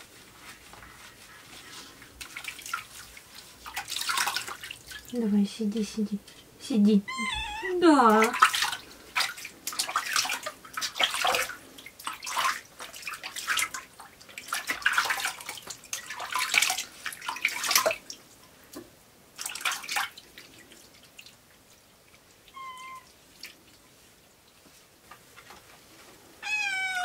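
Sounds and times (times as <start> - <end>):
water splashing: 1.5 - 5.2, 7.9 - 18.4, 19.3 - 24.6
cat meowing: 7.0 - 7.8, 22.5 - 23.1, 26.4 - 27.0.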